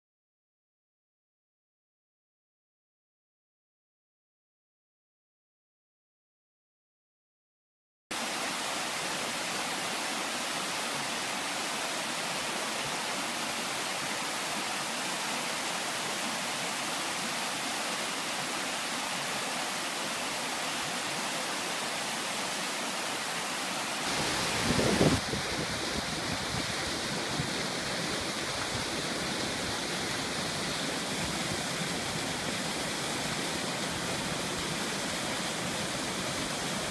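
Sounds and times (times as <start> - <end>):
stream water rushing over rocks: 8.1 - 36.9
waterfall plunging into pool: 24.0 - 36.9.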